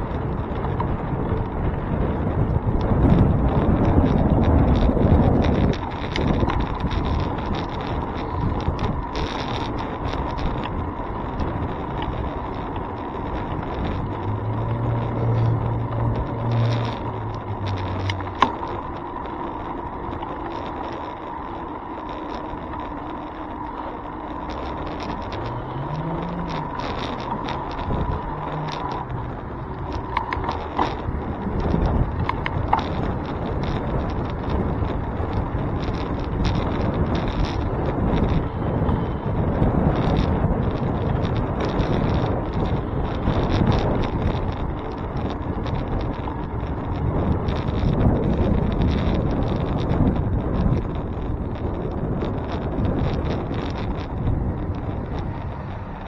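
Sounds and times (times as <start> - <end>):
handlebar rattles and knocks: 0.0 - 56.0
motor vehicle engine humming: 0.0 - 56.0
road and wind noise: 0.0 - 56.0
engine pitch rising and falling: 24.5 - 32.2.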